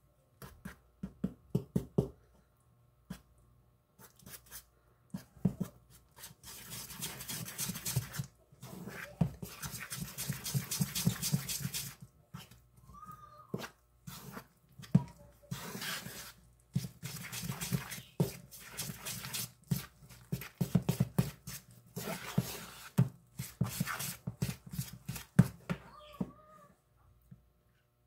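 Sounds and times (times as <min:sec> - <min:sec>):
spoon stirring batter: 0:04.0 - 0:12.7, 0:13.4 - 0:25.6.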